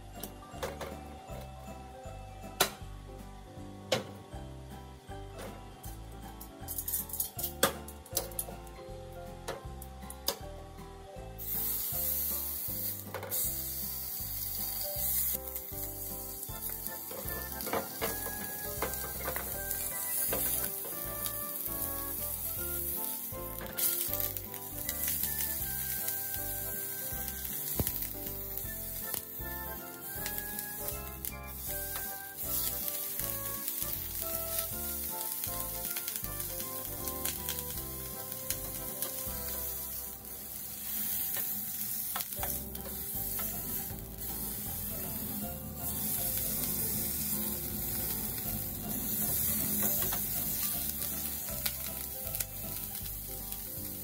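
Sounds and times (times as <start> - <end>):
steak sizzling in hot oil: 11.4 - 54.0.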